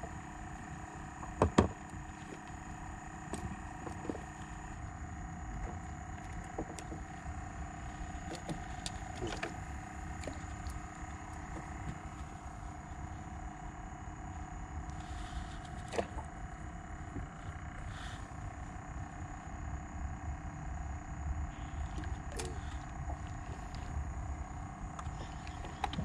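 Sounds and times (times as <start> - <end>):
faint steady hum: 0.0 - 26.0
sharp knocks on boat: 1.2 - 1.9.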